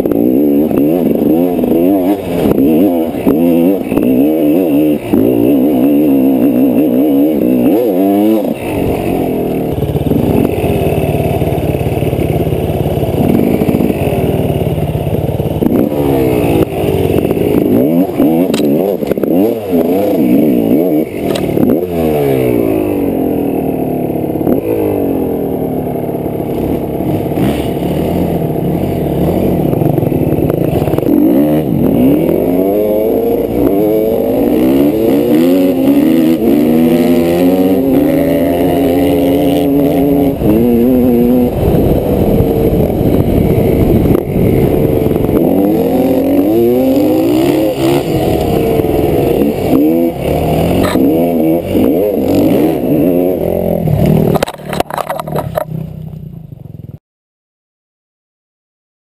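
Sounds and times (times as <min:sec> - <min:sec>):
dirt bike engine revving: 0:00.0 - 0:56.2
wind noise: 0:34.6 - 0:53.0.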